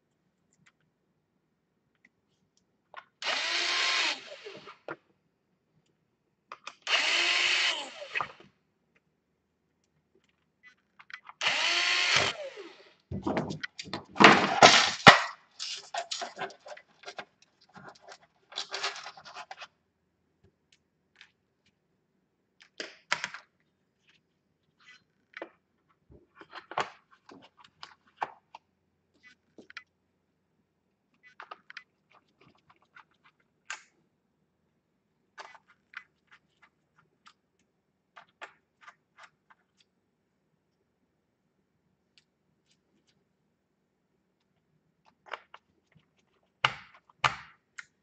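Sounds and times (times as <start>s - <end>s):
cordless screwdriver whirring: 3.2s - 4.8s, 6.9s - 8.4s, 11.4s - 12.8s.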